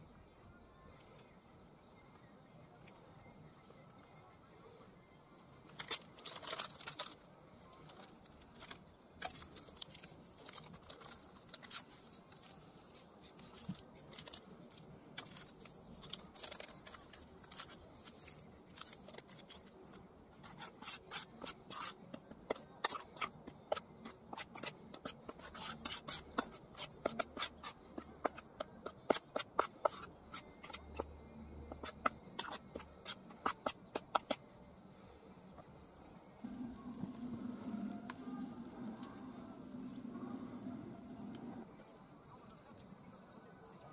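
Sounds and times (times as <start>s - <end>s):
metal spoon scraping bowl: 20.4s - 31.1s, 31.7s - 34.4s, 36.4s - 39.2s.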